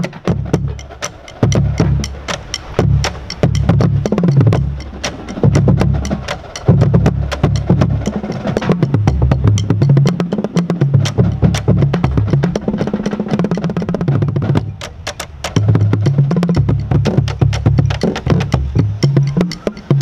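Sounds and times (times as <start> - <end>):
sharp clicks: 0.0 - 14.0
pitched bass drums with mallets: 0.0 - 20.0.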